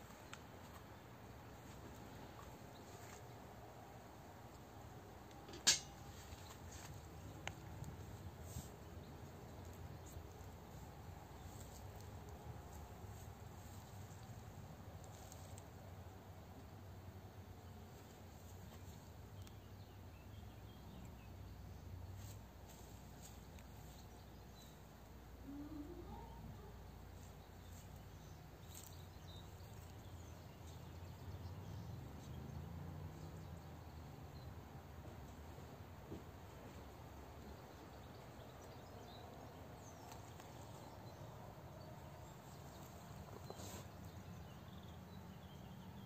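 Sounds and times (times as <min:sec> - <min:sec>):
low steady hiss and rumble: 0:00.0 - 0:46.0.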